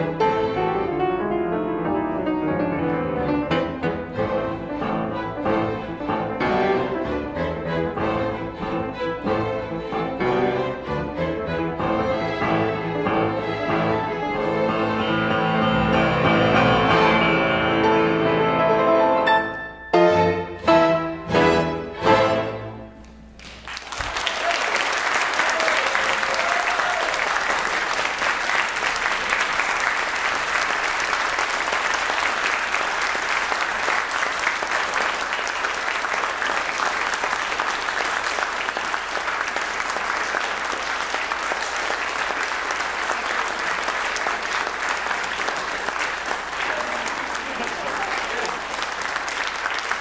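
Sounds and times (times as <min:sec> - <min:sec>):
piano and orchestra chord: 0:00.0 - 0:23.3
audience applause: 0:23.4 - 0:50.0.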